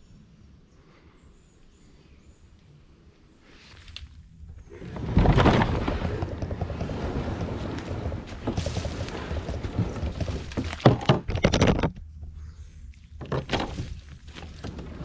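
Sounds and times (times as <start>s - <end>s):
kayak dragged over leaf litter: 4.8s - 11.0s, 13.5s - 15.0s
knocks of kayak on roots: 4.9s - 12.0s, 13.2s - 15.0s.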